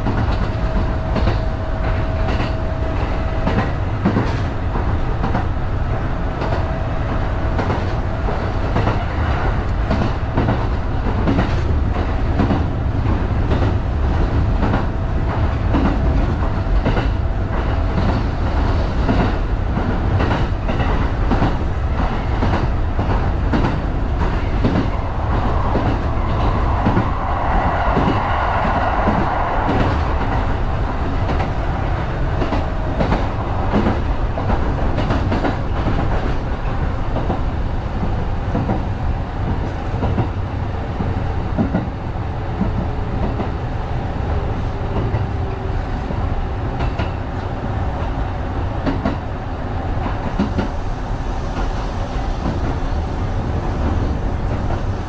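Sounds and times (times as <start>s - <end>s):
train running rumble: 0.0s - 55.0s.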